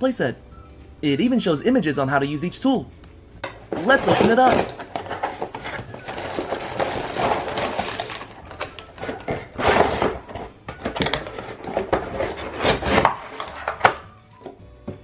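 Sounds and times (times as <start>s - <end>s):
cardboard scraping and rustling: 3.7s - 14.0s.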